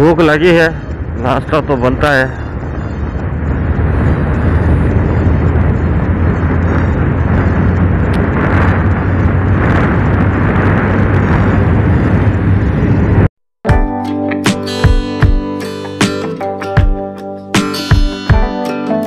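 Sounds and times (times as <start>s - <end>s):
motorcycle engine drone: 0.0s - 13.3s
wind noise on microphone: 0.0s - 13.3s
acoustic guitar music: 13.7s - 19.0s.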